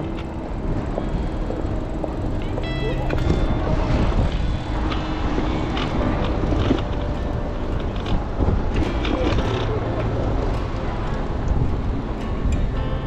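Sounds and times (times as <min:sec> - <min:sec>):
bicycle tyre noise: 0:00.0 - 0:13.0
wind rumble on microphone: 0:00.0 - 0:13.0
brief high tones: 0:02.4 - 0:04.2.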